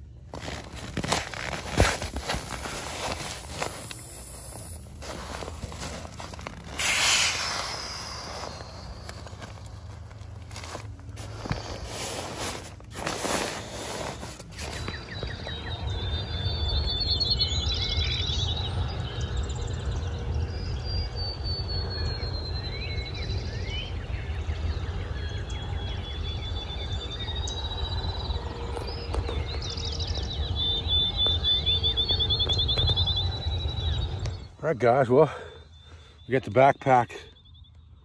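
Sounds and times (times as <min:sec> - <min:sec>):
rustling handling noise: 0:00.2 - 0:15.0
songbird singing with trill: 0:07.5 - 0:11.8, 0:13.0 - 0:38.0.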